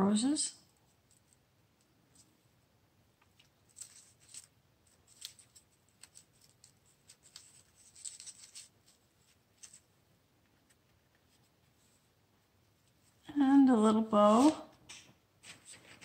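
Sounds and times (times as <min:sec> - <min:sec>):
paper crinkling: 0:03.2 - 0:12.0, 0:15.4 - 0:16.0.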